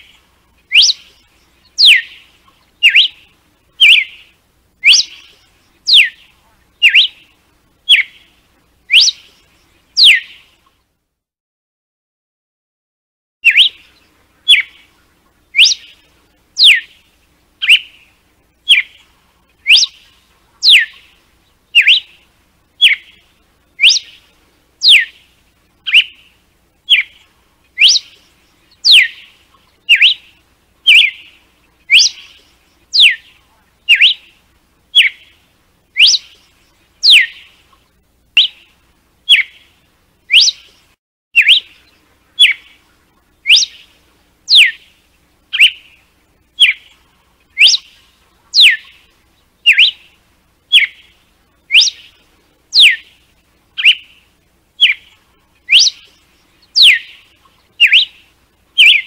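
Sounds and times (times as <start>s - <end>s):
bird whistled whip notes: 0.0s - 1.2s, 1.8s - 2.2s, 2.8s - 7.3s, 7.9s - 8.3s, 8.9s - 9.4s, 10.0s - 10.4s, 13.4s - 13.9s, 14.5s - 14.8s, 15.6s - 16.0s, 16.6s - 17.0s, 17.6s - 18.0s, 18.7s - 19.0s, 19.6s - 21.1s, 21.8s - 22.2s, 22.8s - 23.2s, 23.8s - 24.2s, 24.8s - 25.2s, 25.9s - 26.3s, 26.9s - 27.2s, 27.8s - 29.3s, 29.9s - 31.3s, 31.9s - 33.3s, 33.9s - 34.3s, 36.0s - 37.5s, 38.4s - 38.7s, 39.3s - 39.6s, 40.3s - 40.8s, 41.4s - 42.8s, 43.4s - 43.9s, 44.5s - 44.9s, 45.5s - 45.9s, 47.6s - 50.1s, 50.7s - 51.1s, 51.7s - 52.2s, 52.8s - 53.1s, 53.8s - 54.2s, 54.8s - 55.1s, 55.7s - 56.2s, 56.8s - 58.2s, 58.8s - 59.0s
bird chirps: 0.0s - 10.9s, 13.4s - 59.0s.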